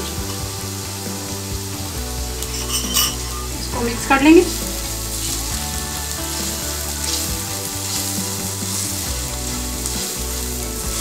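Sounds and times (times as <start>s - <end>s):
onions sizzling in hot oil: 0.0s - 11.0s
spatula stirring in pan: 4.0s - 11.0s.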